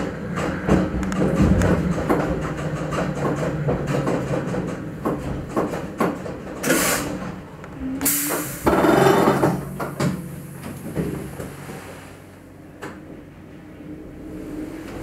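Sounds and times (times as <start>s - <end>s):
compressed air hiss: 6.7s - 7.2s.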